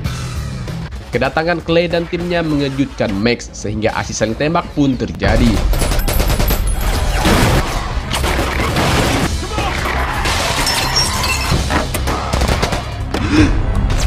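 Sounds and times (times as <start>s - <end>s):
film music score: 0.0s - 14.0s
gunfire: 5.4s - 9.3s
glass shattering: 10.4s - 11.6s.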